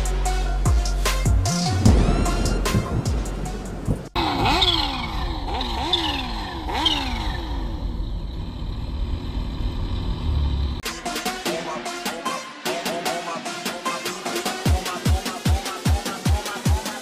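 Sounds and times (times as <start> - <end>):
music: 0.0 - 4.2, 10.8 - 17.0
motorcycle engine revving: 1.8 - 10.8.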